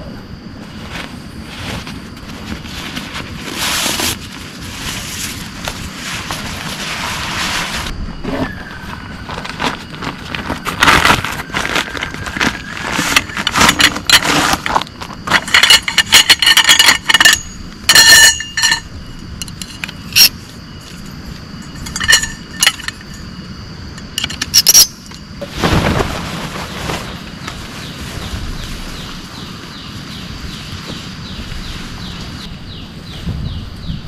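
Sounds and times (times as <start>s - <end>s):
hard objects clinking and scraping: 10.7s - 20.4s, 21.6s - 23.3s.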